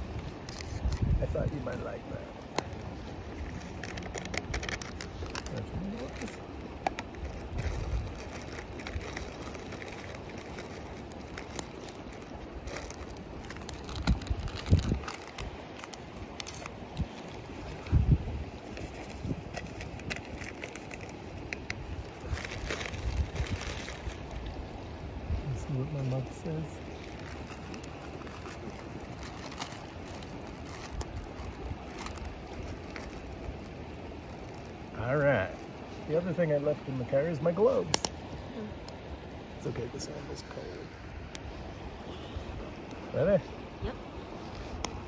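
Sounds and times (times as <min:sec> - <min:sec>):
wind on microphone: 0:00.0 - 0:34.2
wood fire crackling: 0:00.0 - 0:36.8
flowing river water: 0:00.0 - 0:45.0.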